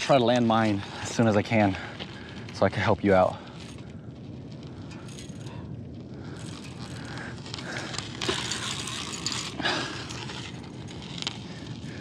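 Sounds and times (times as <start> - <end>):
fishing reel gears ratcheting: 7.8 - 11.2.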